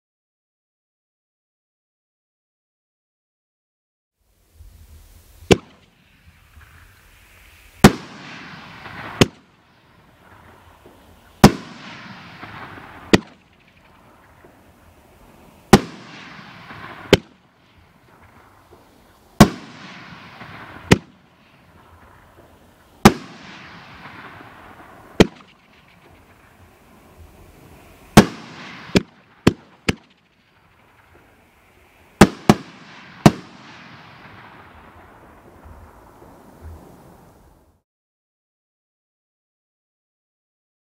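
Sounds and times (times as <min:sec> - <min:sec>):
hiss of falling firework trails: 0:04.2 - 0:37.8
firework launch bang: 0:04.6 - 0:31.4, 0:32.1 - 0:37.5
firework shell bursting: 0:04.6 - 0:37.2.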